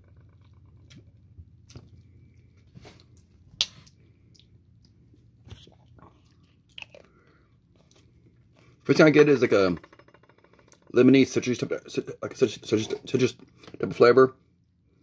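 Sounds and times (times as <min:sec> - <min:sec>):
faint low hum: 0:00.0 - 0:15.0
lip smacks and mouth clicks: 0:03.0 - 0:07.2.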